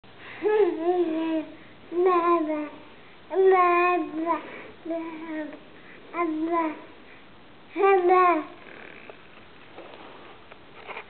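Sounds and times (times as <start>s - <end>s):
baby babbling sing-song: 0.7s - 7.0s, 7.8s - 8.6s.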